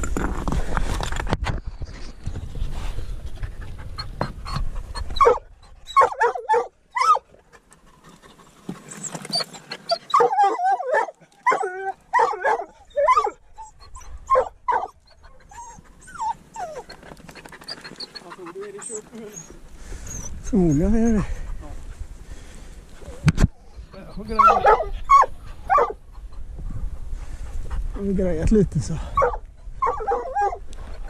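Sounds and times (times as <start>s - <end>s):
rustling against microphone: 0.0s - 6.0s, 7.1s - 12.2s, 12.9s - 31.0s
dog whining and yipping: 4.0s - 7.2s, 8.9s - 20.9s, 23.9s - 26.4s, 29.2s - 31.0s.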